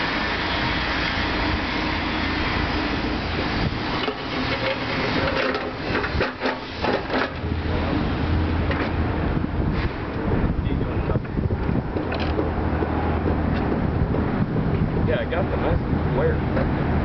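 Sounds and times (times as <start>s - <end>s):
pallet jack rattling on pavement: 4.0s - 7.5s, 11.6s - 13.9s.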